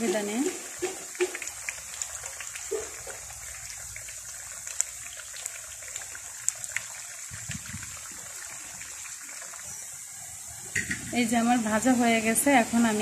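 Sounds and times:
deep-frying sizzle with pops: 0:00.0 - 0:13.0.

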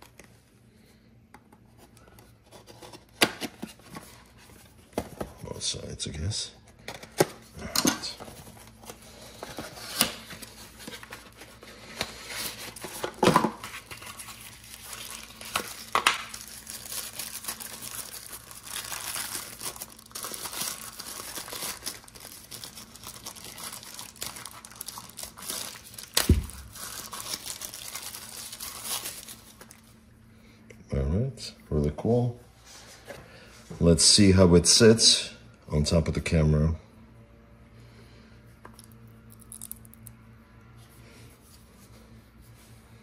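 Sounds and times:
wrapping crinkling and rustling: 0:07.0 - 0:30.0.

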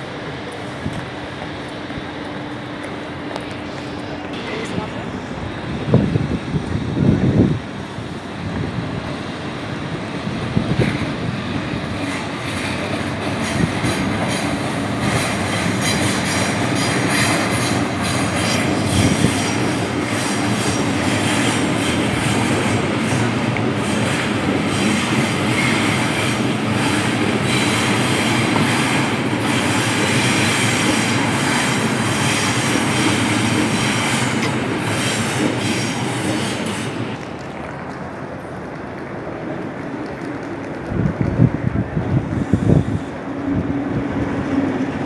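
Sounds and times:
electric train rumbling past: 0:00.0 - 0:45.0.

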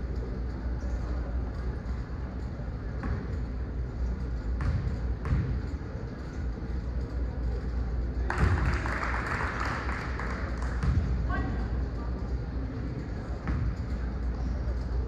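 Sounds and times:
low steady rumble: 0:00.0 - 0:15.0
murmur of spectators: 0:00.0 - 0:15.0
basketball bouncing on court: 0:04.5 - 0:05.8, 0:10.7 - 0:11.2, 0:13.4 - 0:13.8.

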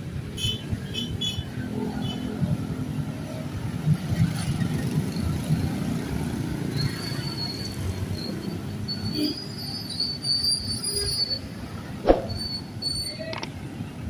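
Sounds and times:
traffic engines rumbling: 0:00.0 - 0:14.0
high wavering squeal: 0:06.8 - 0:13.3.

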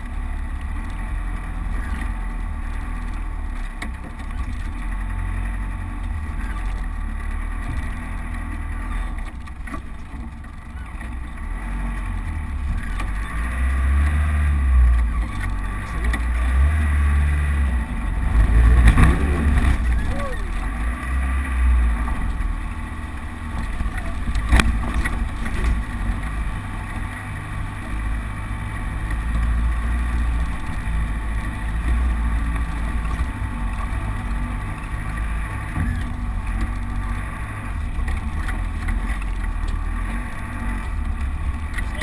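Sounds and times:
engine running at low revs: 0:00.0 - 0:42.0.

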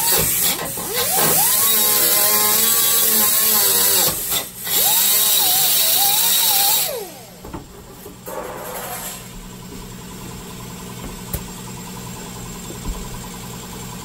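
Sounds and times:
pneumatic cut-off tool cutting steel: 0:00.0 - 0:07.4, 0:08.2 - 0:09.3.

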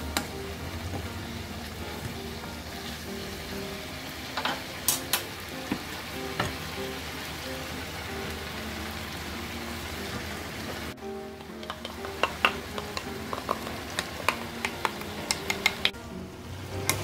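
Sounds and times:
chicken sizzling in a wok: 0:00.0 - 0:17.0
spatulas clacking on pan: 0:11.4 - 0:16.0.

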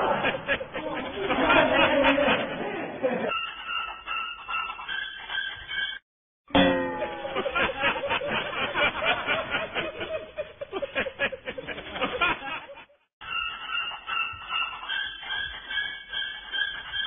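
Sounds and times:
laughter and chuckling: 0:00.0 - 0:03.4, 0:07.0 - 0:13.1
falling pitched sound: 0:06.5 - 0:07.8.

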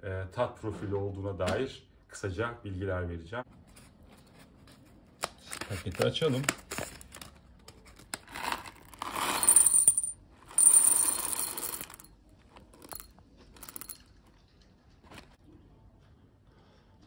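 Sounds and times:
coffee beans clattering into glass jar: 0:08.3 - 0:14.2
paper bag rustling: 0:14.9 - 0:15.4.

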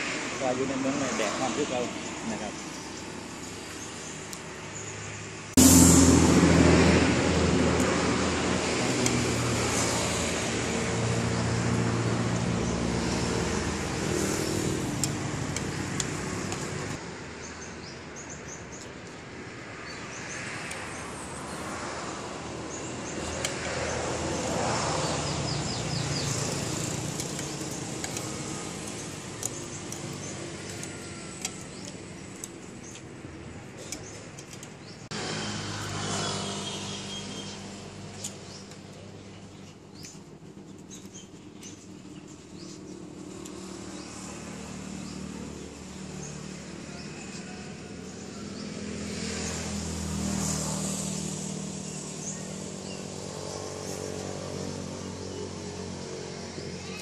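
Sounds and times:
passing traffic: 0:00.0 - 0:57.0
small birds chirping: 0:00.4 - 0:05.5, 0:09.0 - 0:57.0
vehicle engine passing: 0:05.0 - 0:17.0, 0:20.1 - 0:32.6, 0:34.8 - 0:40.0, 0:42.6 - 0:57.0.

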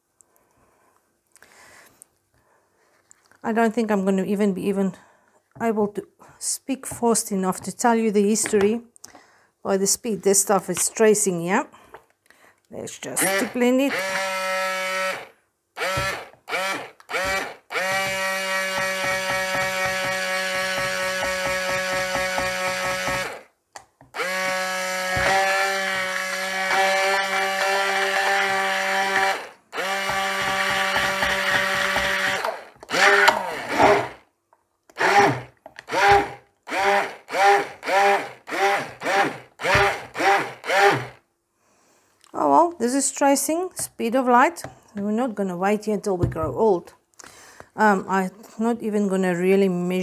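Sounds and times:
stick blender motor whine: 0:13.2 - 0:23.5, 0:24.1 - 0:34.2, 0:34.9 - 0:41.2.

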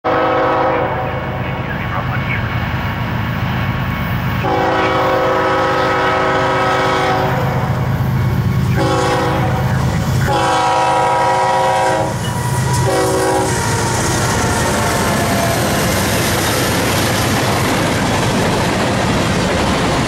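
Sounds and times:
locomotive air horn blasts: 0:00.1 - 0:01.2, 0:04.4 - 0:07.7, 0:08.7 - 0:15.6
diesel engine low rumble: 0:07.5 - 0:10.4.

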